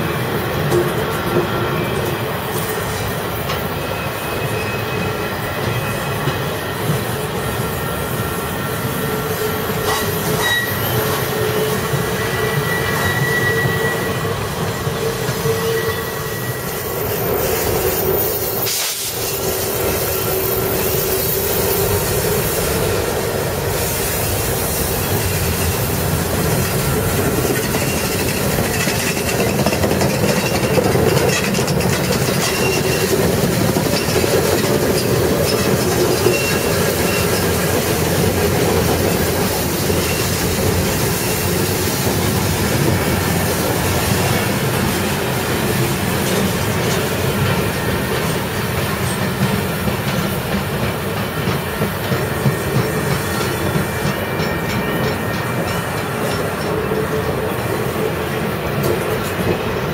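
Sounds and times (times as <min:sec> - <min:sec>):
train wheels rumbling on rails: 0:00.0 - 0:59.9
wheel squeal: 0:03.5 - 0:06.7, 0:09.1 - 0:22.4, 0:24.7 - 0:42.1.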